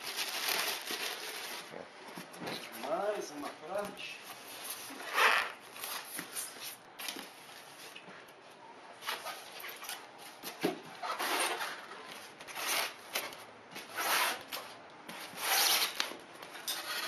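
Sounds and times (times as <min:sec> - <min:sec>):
styrofoam rubbing and scraping: 0:13.8 - 0:14.6, 0:15.2 - 0:16.0
styrofoam squeak: 0:15.3 - 0:16.1.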